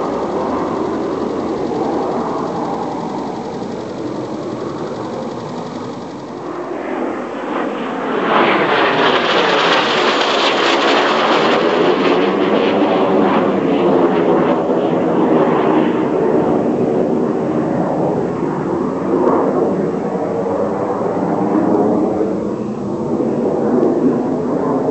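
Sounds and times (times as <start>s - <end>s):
jet aircraft flyby: 0.0s - 13.8s.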